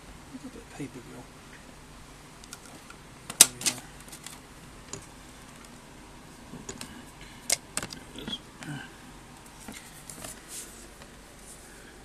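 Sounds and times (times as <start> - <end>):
sharp clicks and knocks at desk: 7.5 - 8.0.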